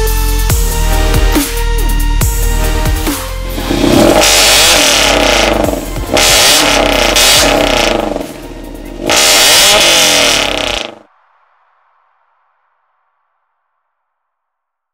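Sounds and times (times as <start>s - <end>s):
car engine revving: 3.4s - 11.1s.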